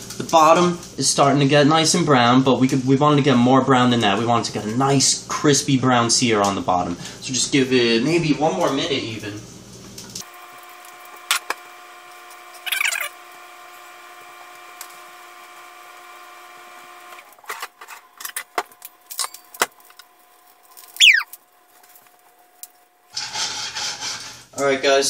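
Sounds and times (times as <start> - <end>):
sharp falling squeak: 20.9 - 21.3.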